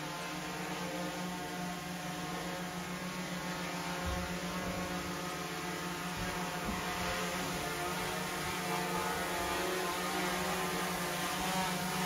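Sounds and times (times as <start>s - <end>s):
drone propellers buzzing: 0.0s - 12.0s.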